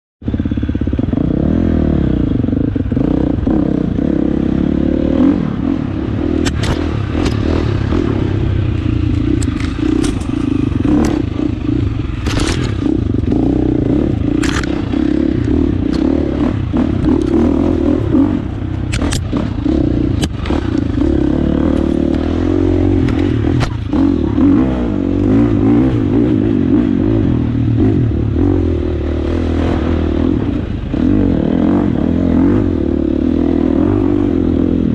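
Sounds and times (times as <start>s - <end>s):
dirt bike engine revving: 0.3s - 34.9s
knocks and clatters: 8.8s - 11.5s, 12.2s - 13.0s.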